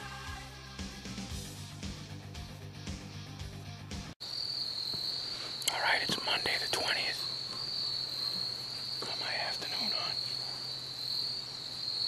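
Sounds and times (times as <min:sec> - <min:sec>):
crickets trilling: 0:04.2 - 0:12.0.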